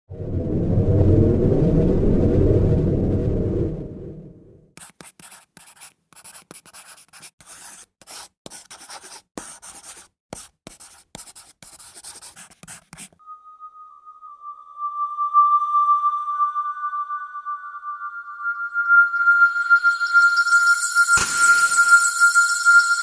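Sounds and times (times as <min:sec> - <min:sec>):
low rumble: 0:00.1 - 0:04.7
pen scratching on paper: 0:04.8 - 0:13.2
steady high tone: 0:13.2 - 0:23.0.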